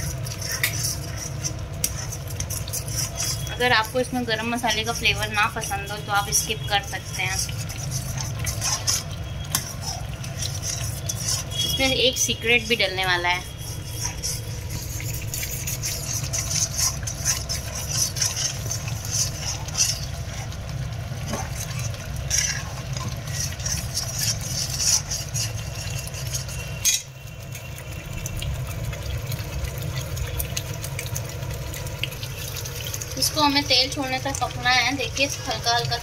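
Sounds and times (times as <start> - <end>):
metal ladle scraping a pan: 0.0 - 27.6
sauce bubbling and sizzling: 0.0 - 36.0.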